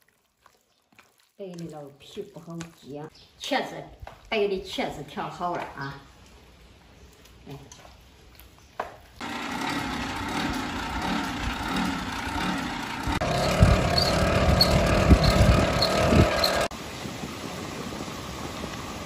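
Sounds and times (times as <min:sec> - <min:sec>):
hand-cranked blower fan whirring: 0:09.2 - 0:16.7.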